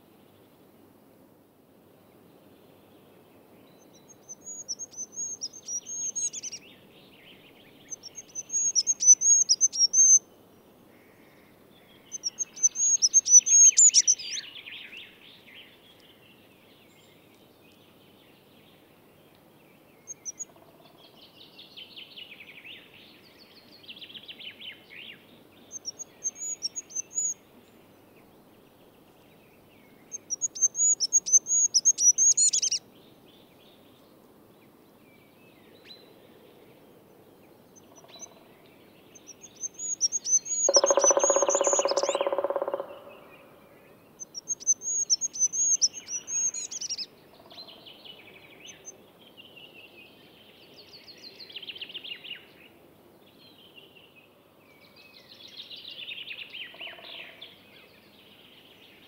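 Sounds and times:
quiet lower bird twittering: 3.6 - 10.3, 10.9 - 17.4, 19.9 - 34.1, 35.1 - 52.6
songbird trilling: 3.8 - 6.6, 7.9 - 10.2, 12.1 - 14.5, 25.7 - 27.4, 30.1 - 32.8, 39.2 - 43.4, 44.2 - 47.1.

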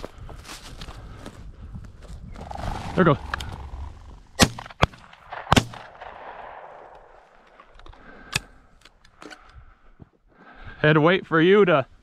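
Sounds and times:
faint shotgun shots: 4.4 - 7.2
shotgun blasts: 4.4 - 7.4.

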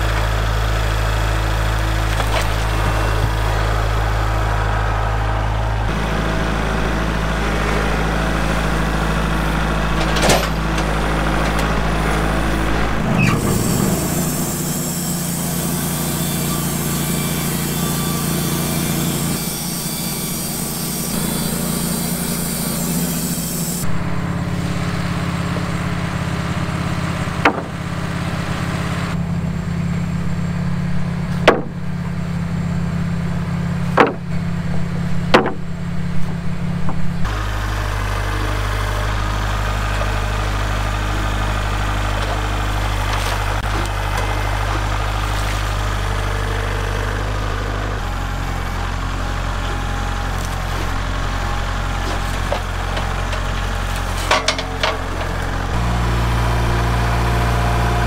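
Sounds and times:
band sawmill cutting log: 0.0 - 58.0
engine running steadily: 0.0 - 58.0
wooden boards clacking: 2.0 - 3.5, 27.4 - 27.9, 31.3 - 31.8, 33.9 - 34.5, 35.3 - 35.8, 52.0 - 55.8.

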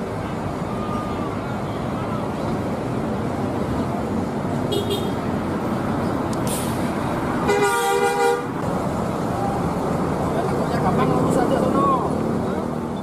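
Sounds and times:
traffic passing: 0.0 - 13.0
bus horn blast: 4.7 - 5.2, 7.5 - 8.6.

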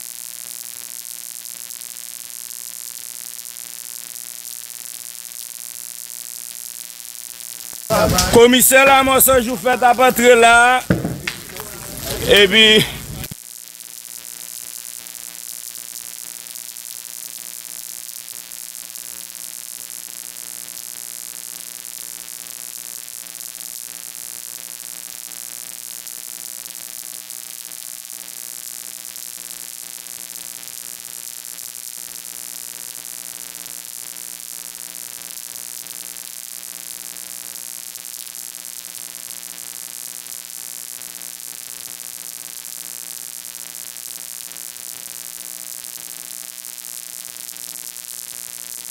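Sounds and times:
constant hiss: 7.9 - 13.4.

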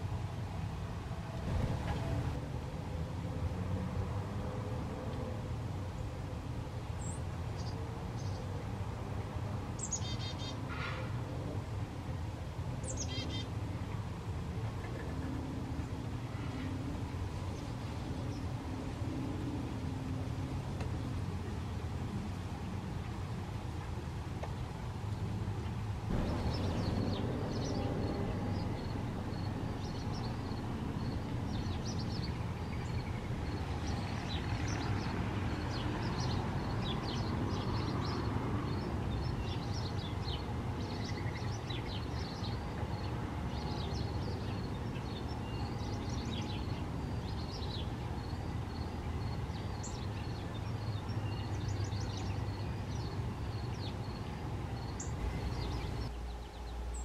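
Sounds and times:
small birds chirping: 9.8 - 10.7, 12.8 - 14.1, 25.6 - 57.0
steady low rumble: 26.0 - 31.8.

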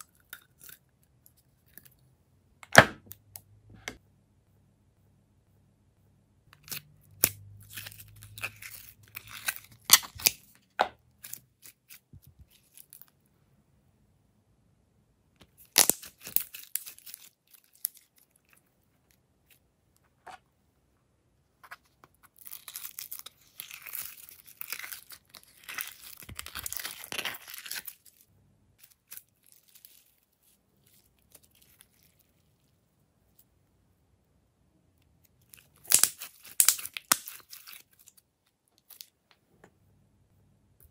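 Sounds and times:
slime crackling and snapping: 15.6 - 18.0, 22.4 - 28.0, 35.5 - 38.2.

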